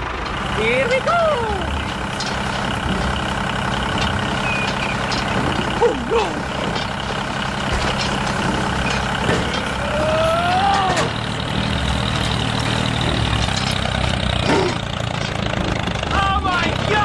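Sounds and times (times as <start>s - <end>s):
diesel engine running: 0.0s - 17.0s.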